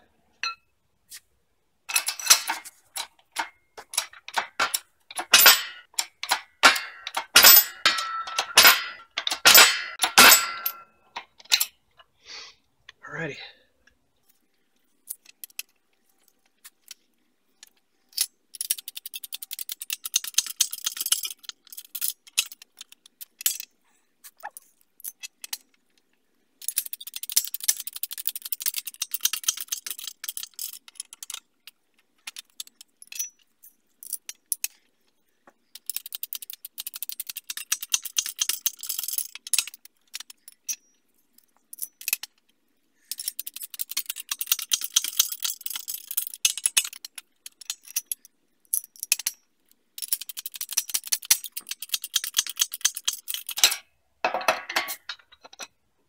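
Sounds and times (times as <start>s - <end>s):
hydraulic press metallic clicking: 1.9s - 11.7s.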